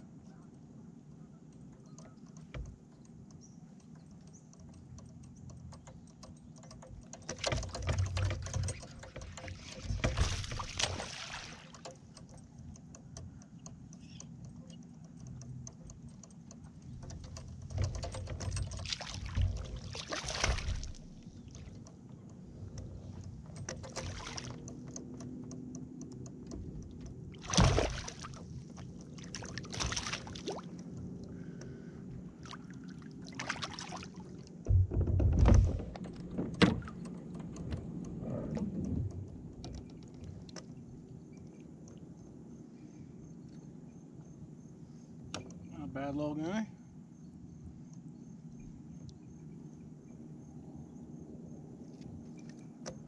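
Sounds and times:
small clicks: 1.5 - 20.0, 20.6 - 27.5
low thuds against kayak hull: 7.4 - 11.2, 17.0 - 24.6, 26.6 - 28.5, 34.6 - 39.6.

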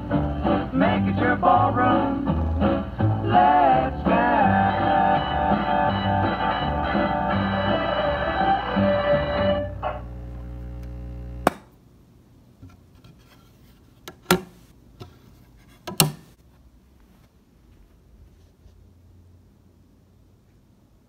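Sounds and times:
radio speaker humming: 6.3 - 11.8
handling knocks and clicks: 14.0 - 16.4.

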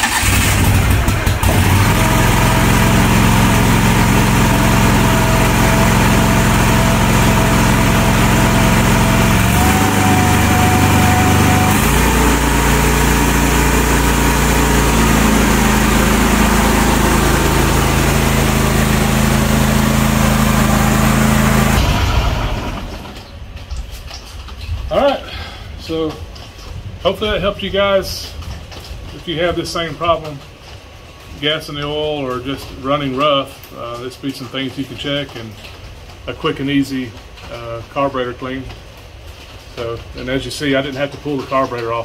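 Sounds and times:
mower engine running: 0.0 - 23.6.

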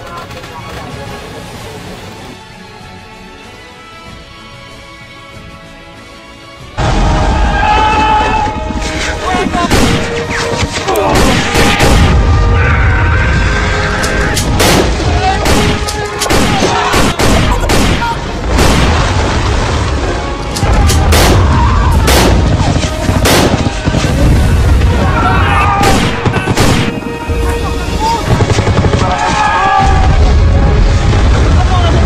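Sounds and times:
music: 0.0 - 32.0
sharp gunshots: 9.6 - 10.4, 11.0 - 12.2, 14.4 - 19.2, 20.7 - 24.1, 25.8 - 27.0
heavy explosion booms: 29.8 - 32.0.

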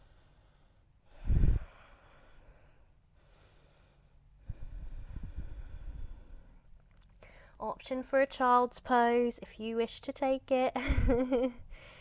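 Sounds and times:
breathing: 0.0 - 7.6, 11.7 - 12.0
forceful nasal exhale: 1.2 - 2.5, 4.5 - 6.6.

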